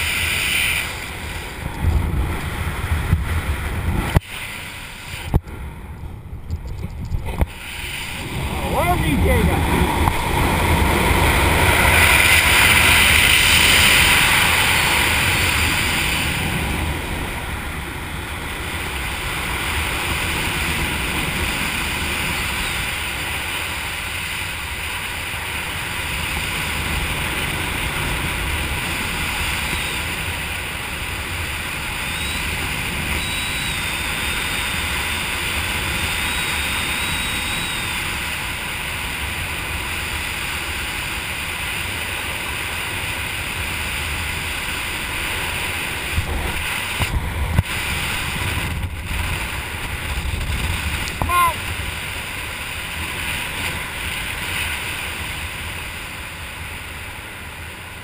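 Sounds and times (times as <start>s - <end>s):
wind buffeting microphone: 0.8s - 4.2s, 5.2s - 24.0s, 43.0s - 56.0s.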